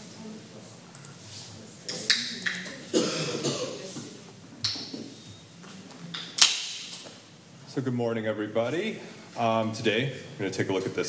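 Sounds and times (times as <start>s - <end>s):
man coughing: 2.9s - 3.9s.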